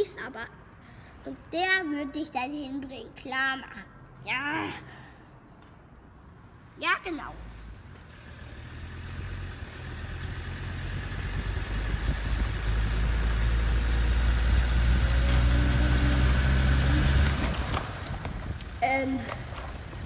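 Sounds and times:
car engine running: 8.1 - 20.0.

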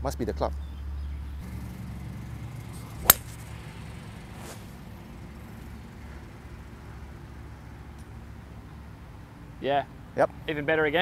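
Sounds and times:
golf club striking ball: 2.6 - 4.8.

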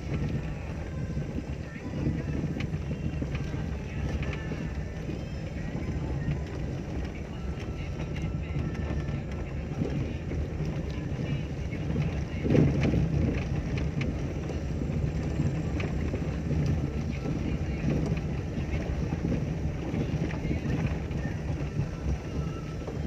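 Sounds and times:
car engine and tyres rumbling: 0.0 - 23.0
wheels clicking over stones: 0.0 - 23.0.

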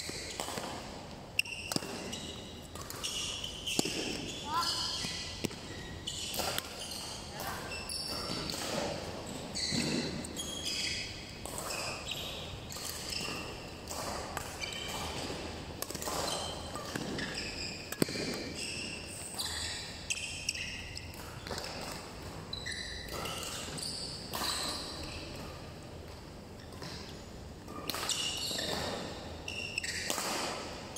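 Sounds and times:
shoes squeaking on court: 0.0 - 30.9
racket striking shuttlecock: 0.2 - 7.0, 8.0 - 9.1, 11.4 - 22.4, 29.8 - 30.8.

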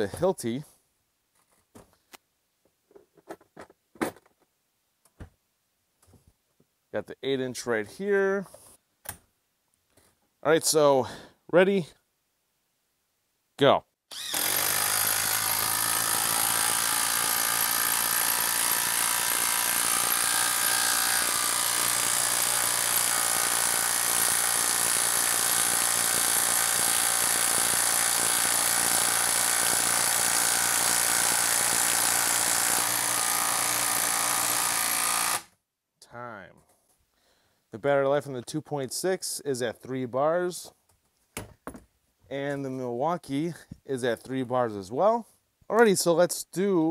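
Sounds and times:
impact driver driving screw into wood: 14.1 - 35.5.

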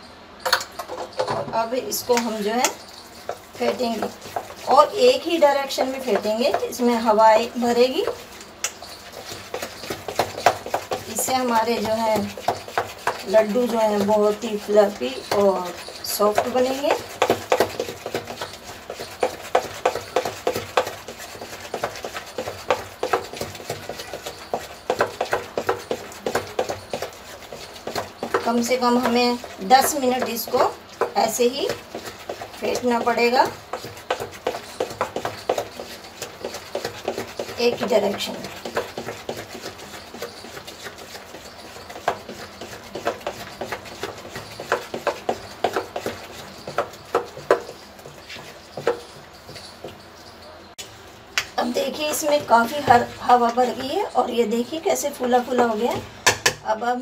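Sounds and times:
batter slapping in metal bowl: 0.4 - 56.6
hand slapping wet batter: 8.2 - 24.3.

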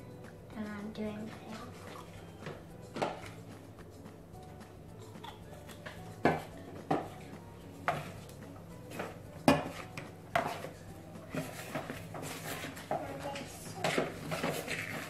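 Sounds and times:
spoons clacking against bowls: 5.0 - 7.2, 7.8 - 15.0
metal spoons scraping plastic bowls: 7.8 - 8.3, 8.9 - 15.0.

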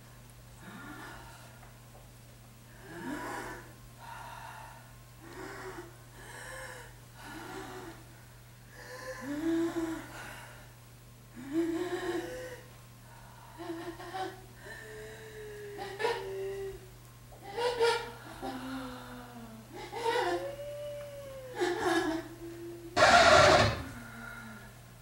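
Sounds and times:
steady low hum: 0.0 - 25.0
person making breathy vocal calls: 22.4 - 24.0.

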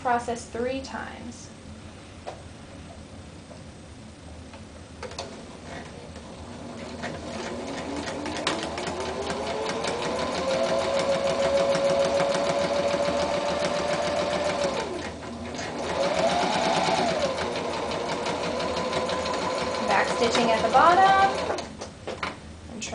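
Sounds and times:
sewing machine motor whine: 6.6 - 21.7.

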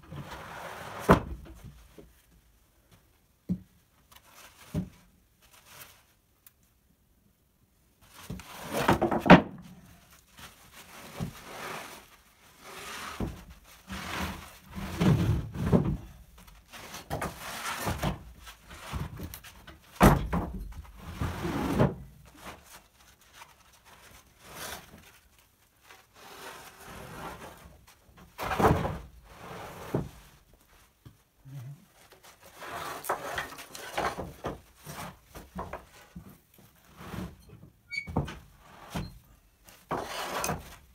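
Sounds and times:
boards scraping together: 8.3 - 9.7, 10.8 - 19.6, 26.0 - 30.4, 32.3 - 37.4, 39.8 - 40.9
wooden boards thunking: 8.8 - 9.6, 20.0 - 20.7.

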